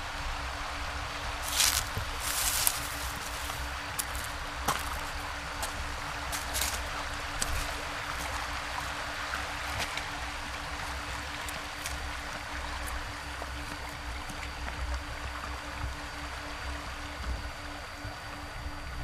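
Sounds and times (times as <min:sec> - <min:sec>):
low water rumble: 0:00.0 - 0:19.0
river rushing over stones: 0:00.5 - 0:13.0.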